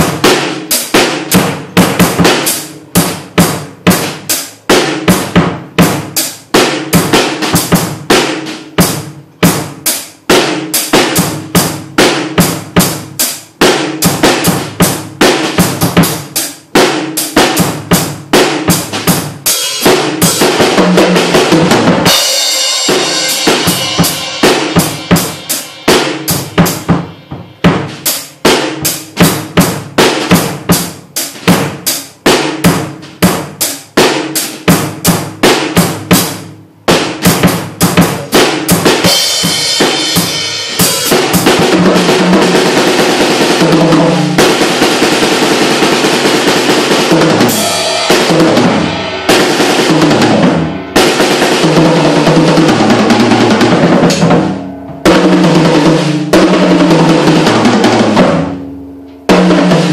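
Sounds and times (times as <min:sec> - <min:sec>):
drum kit playing: 0:00.0 - 0:59.9
cymbals ringing: 0:22.0 - 0:29.1, 0:47.5 - 0:57.4.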